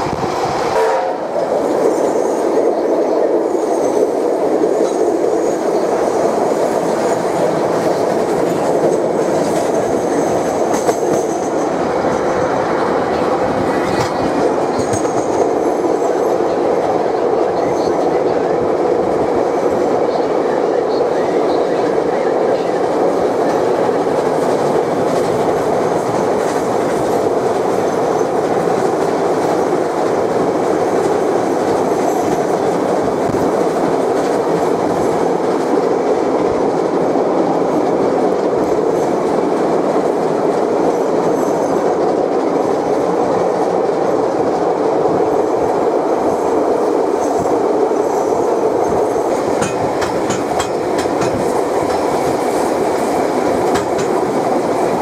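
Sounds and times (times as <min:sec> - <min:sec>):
train rumbling along track: 0:00.0 - 0:55.0.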